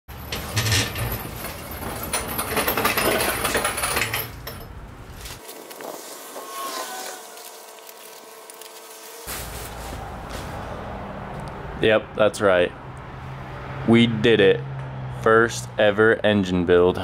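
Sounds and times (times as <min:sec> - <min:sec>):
plastic sheet rustling and crinkling: 0:05.1 - 0:10.6.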